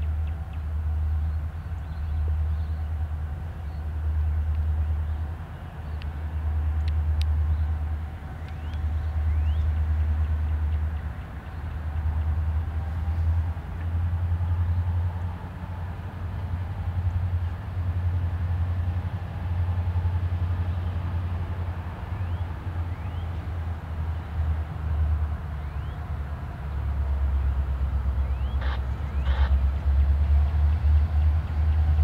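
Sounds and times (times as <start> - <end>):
locomotive engine rumble: 0.0 - 32.0.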